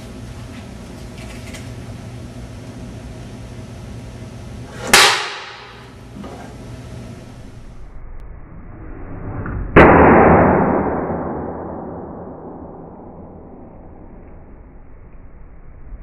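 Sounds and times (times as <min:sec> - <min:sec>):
wire exploding with loud bang: 0:09.7 - 0:13.7.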